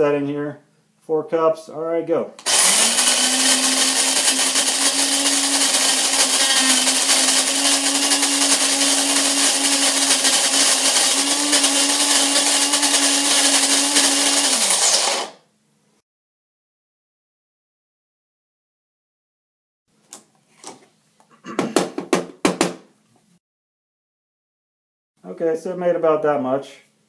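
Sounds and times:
coffee grinder motor whirring: 2.4 - 15.4.

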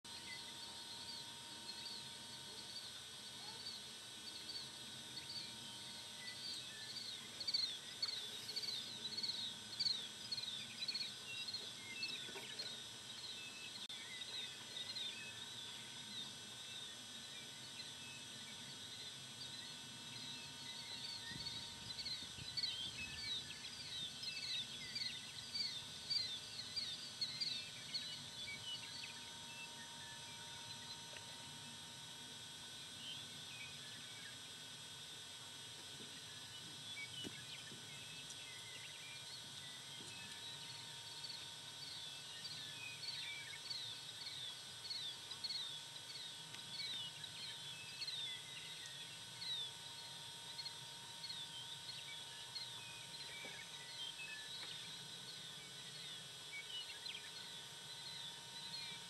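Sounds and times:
faint outdoor background noise: 0.1 - 59.0.

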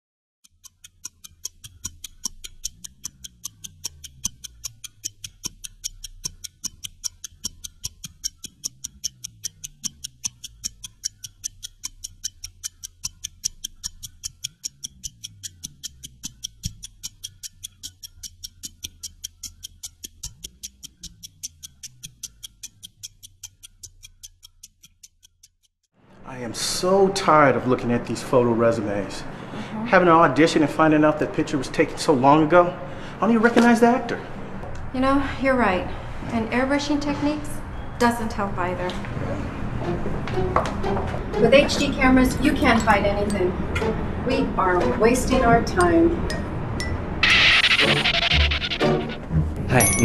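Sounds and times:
fast clock-like ticking: 0.4 - 25.9, 40.8 - 49.3
low droning music: 37.6 - 50.0.

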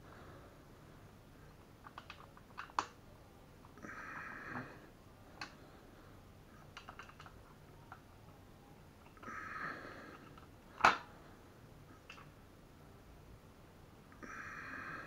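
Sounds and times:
person breathing: 0.0 - 1.6, 3.8 - 6.7, 9.2 - 11.7, 14.2 - 15.0
plastic clicks and taps: 1.8 - 3.0, 6.7 - 8.0, 10.2 - 11.1.

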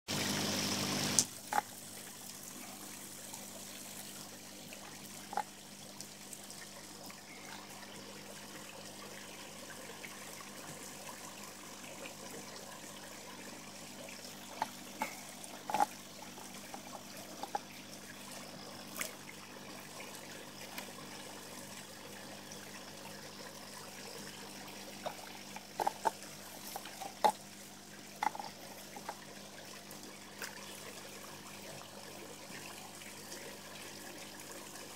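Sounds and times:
water trickling: 0.1 - 34.9
water splashes and plops: 14.5 - 21.0, 24.8 - 31.0.

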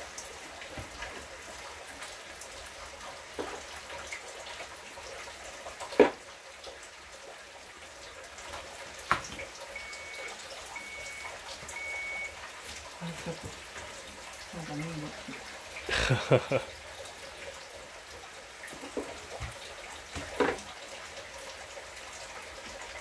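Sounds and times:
running water hiss: 0.0 - 23.0
short high electronic beeps: 9.8 - 12.3.

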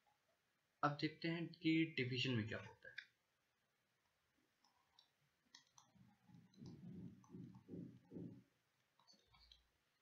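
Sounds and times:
stylus scratching on pen tablet: 5.8 - 8.4.

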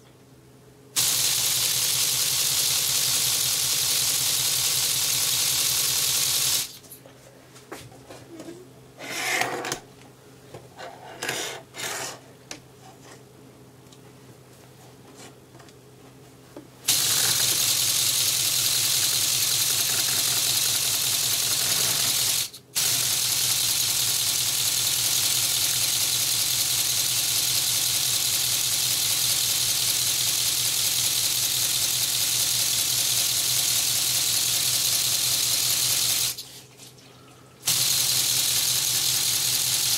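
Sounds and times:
pneumatic engine pistons clattering: 16.9 - 28.5.

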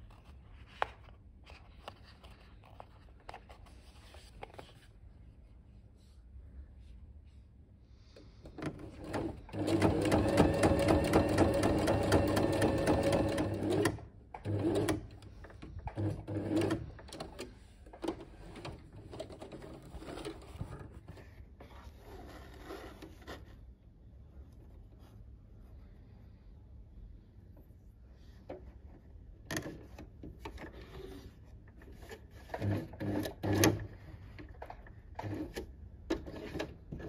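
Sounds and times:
sewing machine stitching: 8.6 - 20.8, 32.4 - 34.0, 34.6 - 37.0.

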